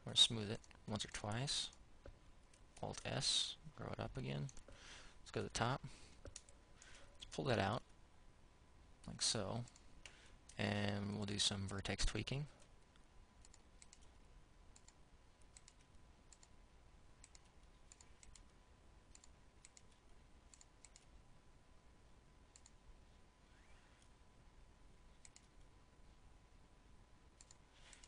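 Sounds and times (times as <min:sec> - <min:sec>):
computer mouse and keyboard clicks: 0:06.2 - 0:07.3, 0:13.4 - 0:14.2, 0:14.8 - 0:16.5, 0:17.2 - 0:18.5, 0:25.1 - 0:25.6, 0:27.4 - 0:28.0.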